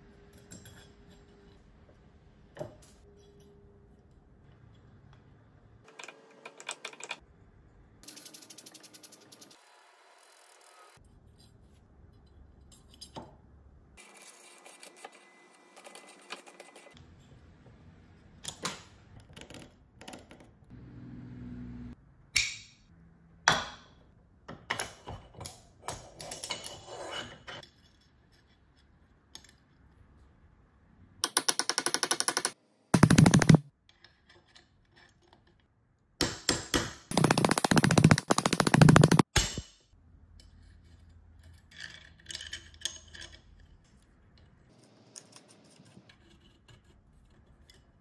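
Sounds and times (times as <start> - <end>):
fast runs of metallic clicks: 31.6 - 33.6, 37.1 - 39.3
small metal parts clicking and scraping: 40.4 - 43.8.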